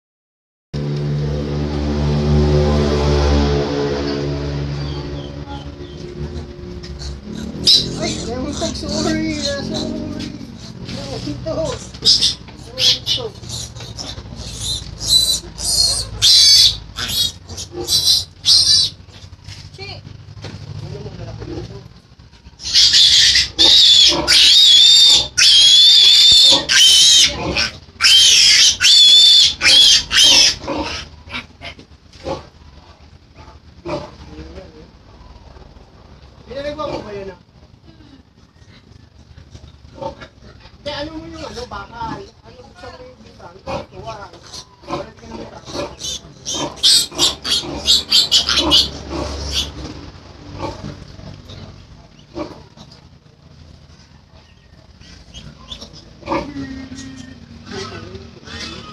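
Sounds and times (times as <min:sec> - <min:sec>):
piglet squealing: 0:04.8 - 0:10.8, 0:11.6 - 0:19.1, 0:22.6 - 0:31.8, 0:43.7 - 0:49.8, 0:54.5 - 0:58.9.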